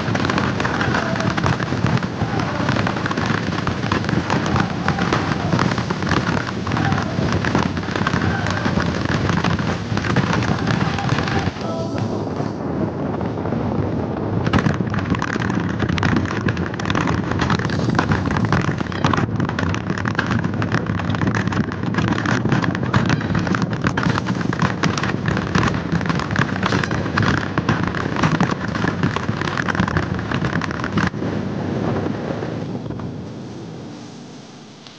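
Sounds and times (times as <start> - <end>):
sled rattling on steel rails: 0.0 - 13.2, 14.2 - 31.4
wind buffeting microphone: 0.0 - 34.8.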